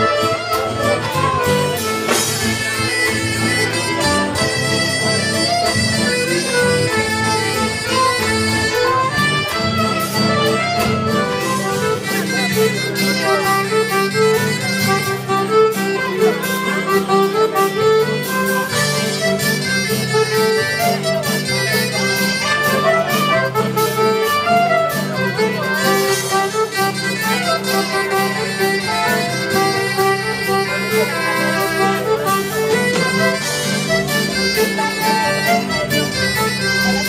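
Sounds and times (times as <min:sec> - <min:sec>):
live band playing dance tune: 0:00.0 - 0:37.0.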